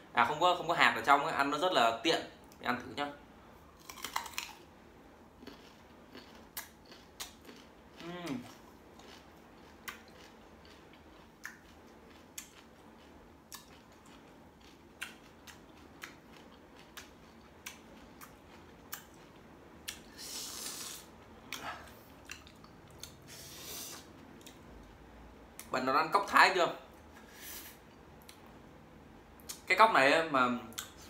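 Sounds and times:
crunching and chewing fruit: 0:03.7 - 0:25.0
breathy hisses through mouth: 0:23.3 - 0:24.0.

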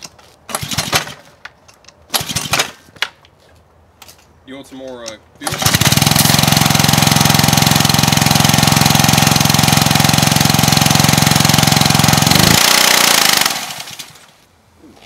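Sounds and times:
pressure washer engine sputtering: 0:05.4 - 0:14.3.

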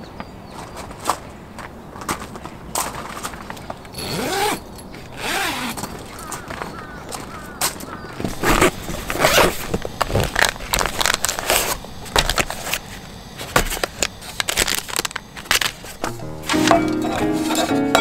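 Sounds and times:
nylon fabric rustling: 0:08.2 - 0:12.4
short crackles and clicks: 0:08.3 - 0:12.9, 0:13.8 - 0:16.0.

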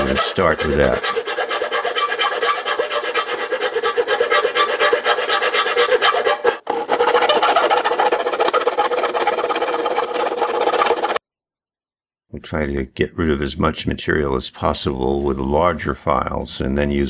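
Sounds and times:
file rasping on sheet metal: 0:00.0 - 0:11.2.

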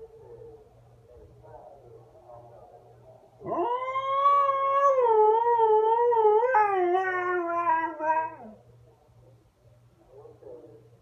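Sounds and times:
dog howling: 0:03.4 - 0:08.6.

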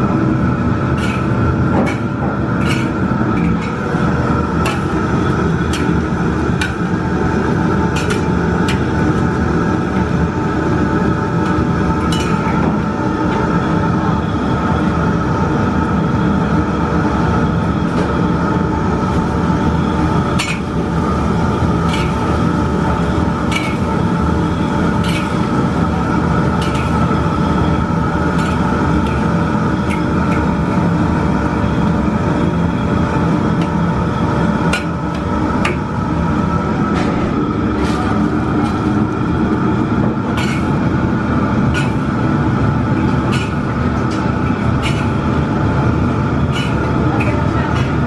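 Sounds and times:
gas burner and fans roar: 0:00.0 - 0:48.0
oil bubbling deep-frying: 0:00.1 - 0:36.7.

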